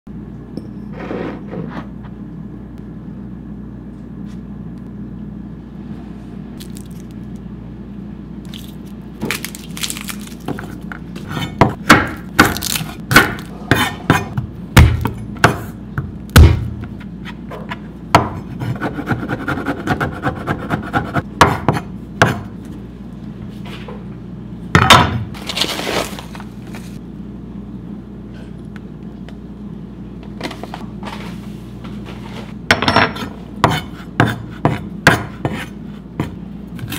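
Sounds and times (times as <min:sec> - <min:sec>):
low steady hum: 0:00.1 - 0:36.9
knife smashing garlic: 0:08.5 - 0:15.7
knife chopping on wooden board: 0:10.5 - 0:22.5, 0:33.2 - 0:36.9.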